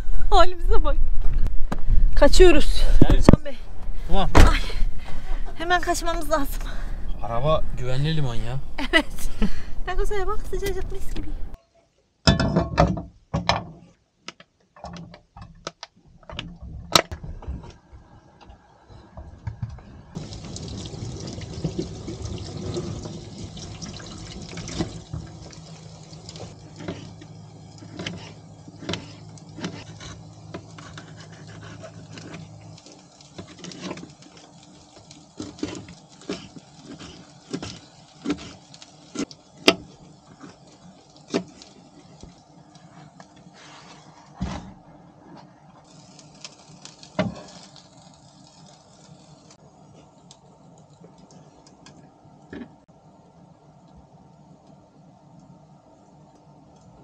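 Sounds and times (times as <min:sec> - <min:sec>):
low hum: 0:00.0 - 0:11.6
meat sizzling in a pan: 0:20.2 - 0:42.4, 0:45.8 - 0:49.6.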